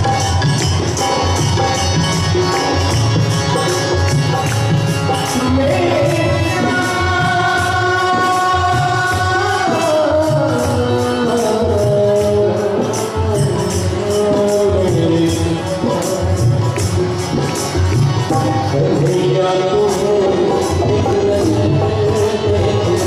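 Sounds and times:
jingling percussion: 0:00.0 - 0:23.0
voices singing devotional song: 0:05.0 - 0:23.0.

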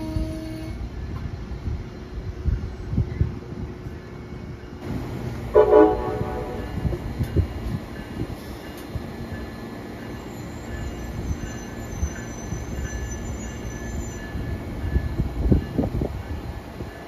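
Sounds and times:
train wheel-on-rail rumble: 0:00.0 - 0:17.0
faint high wheel squeal: 0:09.6 - 0:14.6.

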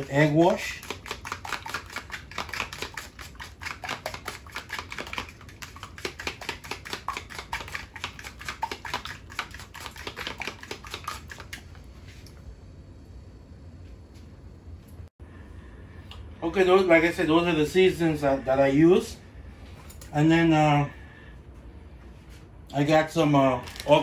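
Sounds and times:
metal utensil whisking in plastic container: 0:00.0 - 0:11.6.

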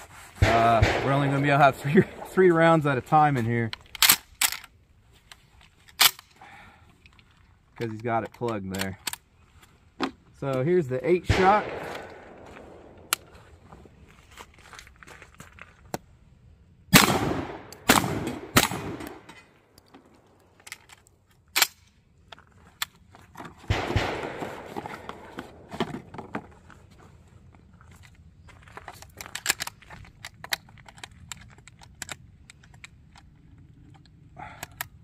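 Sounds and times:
shotgun shots with echo: 0:00.4 - 0:02.2, 0:11.3 - 0:13.0, 0:17.0 - 0:19.3, 0:23.7 - 0:25.6
shells clicking into shotgun: 0:03.8 - 0:04.7, 0:29.0 - 0:35.0.

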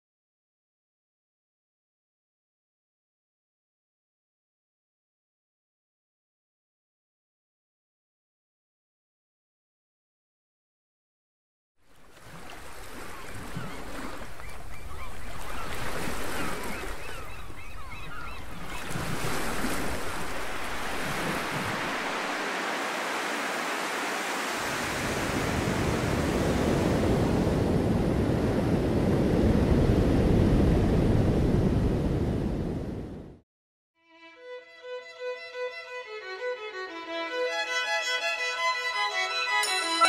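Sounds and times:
short bird calls: 0:13.0 - 0:19.0
surf breaking on beach: 0:18.6 - 0:32.7.

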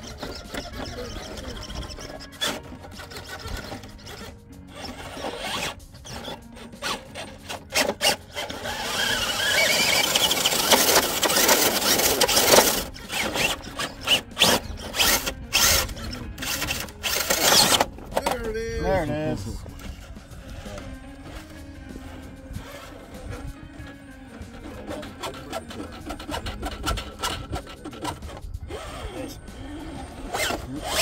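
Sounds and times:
electric motor whining: 0:00.0 - 0:31.0
tires scrubbing on rock: 0:04.8 - 0:18.3, 0:24.5 - 0:31.0.

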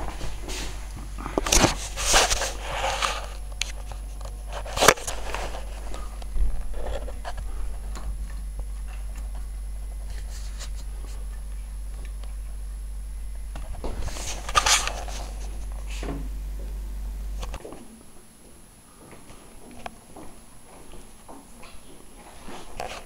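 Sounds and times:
rustling and scraping: 0:00.0 - 0:12.5, 0:13.5 - 0:16.8, 0:22.2 - 0:23.0
washing machine humming: 0:00.0 - 0:21.2.

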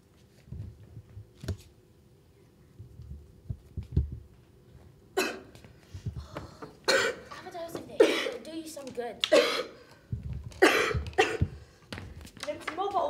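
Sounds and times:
soft low thumps: 0:02.8 - 0:04.4, 0:10.1 - 0:12.2
person coughing: 0:05.2 - 0:05.5, 0:06.9 - 0:07.4, 0:08.0 - 0:08.4, 0:09.3 - 0:09.8, 0:10.6 - 0:11.6.

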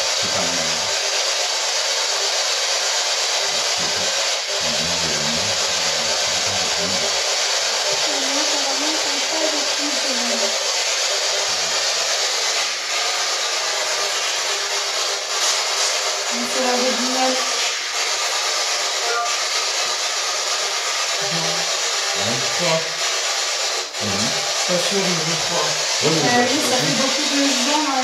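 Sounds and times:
loud radio static: 0:00.0 - 0:01.0, 0:03.5 - 0:14.6, 0:16.2 - 0:19.7, 0:21.2 - 0:28.0
faint muffled voice fragments: 0:00.2 - 0:00.9, 0:03.6 - 0:07.1, 0:21.2 - 0:23.0, 0:24.0 - 0:28.0.

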